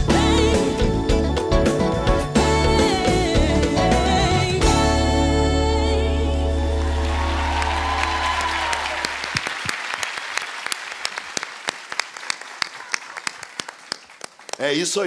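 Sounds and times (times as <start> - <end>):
applause: 6.8 - 15.0.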